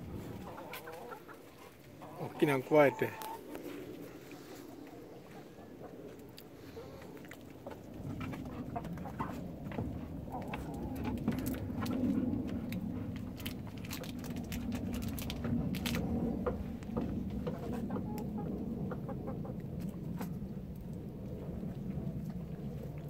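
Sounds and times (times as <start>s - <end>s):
hens clucking: 0.0s - 11.9s, 16.5s - 20.4s.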